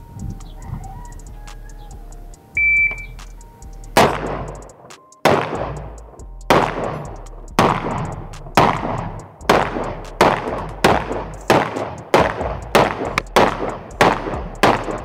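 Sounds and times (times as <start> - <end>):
short high beep: 2.6 - 3.2
rifle shots echoing: 7.6 - 15.0.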